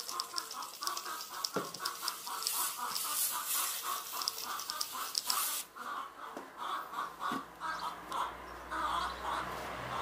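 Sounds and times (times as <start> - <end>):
rapid even chattering: 0.0 - 5.7.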